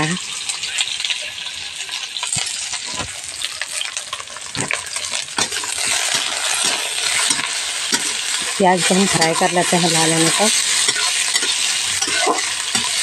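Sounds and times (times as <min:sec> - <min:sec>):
onions sizzling in oil: 0:00.0 - 0:13.0
metal spatula scraping pan: 0:04.5 - 0:13.0.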